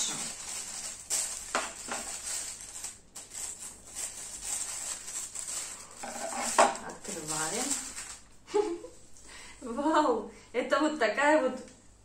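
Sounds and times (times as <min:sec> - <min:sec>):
plastic bag crinkling: 0:00.0 - 0:08.8.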